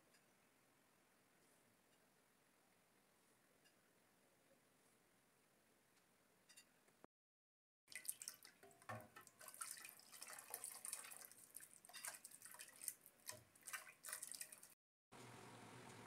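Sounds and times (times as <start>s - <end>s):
broth splashing in metal pot: 7.9s - 14.8s.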